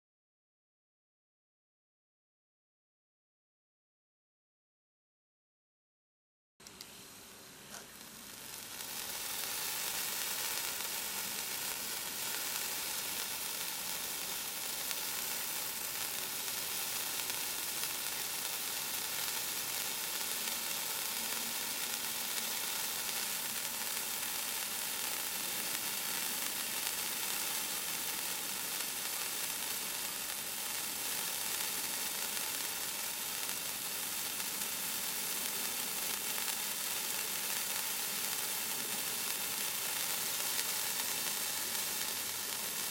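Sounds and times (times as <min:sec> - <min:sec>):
sparkler hissing: 0:06.9 - 0:42.9.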